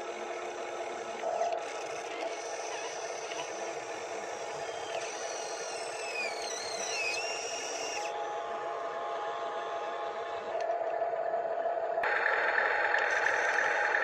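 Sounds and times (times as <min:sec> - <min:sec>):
toy excavator motors whirring: 0:00.0 - 0:10.8, 0:12.1 - 0:14.0
falling high-pitched whines: 0:02.3 - 0:14.0.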